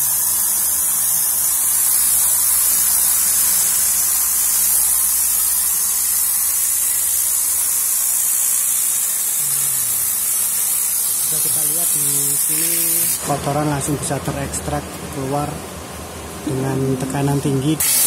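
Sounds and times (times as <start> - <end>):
compressed air hissing: 0.0 - 13.4, 17.8 - 18.0.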